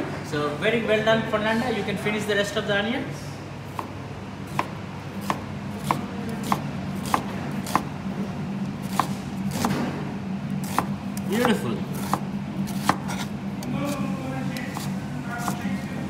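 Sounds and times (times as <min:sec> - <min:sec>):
knife strokes on chopping board: 0:10.6 - 0:14.1, 0:14.7 - 0:15.7.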